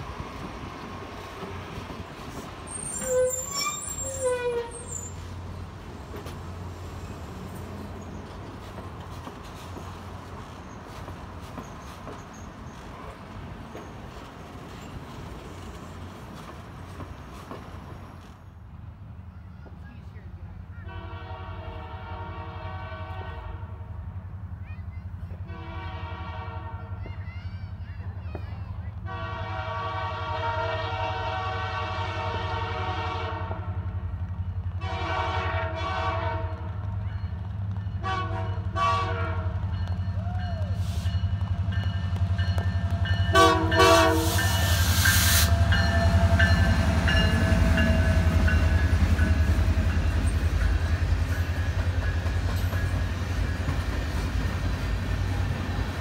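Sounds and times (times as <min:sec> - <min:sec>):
train rumbling past: 0:00.0 - 0:56.0
locomotive horn blasts: 0:03.0 - 0:05.0, 0:20.8 - 0:23.8, 0:25.5 - 0:26.9, 0:29.1 - 0:33.8, 0:34.8 - 0:36.7, 0:38.0 - 0:39.6, 0:43.3 - 0:46.7
wheels clacking on rail joints: 0:07.4 - 0:18.4, 0:39.5 - 0:56.0.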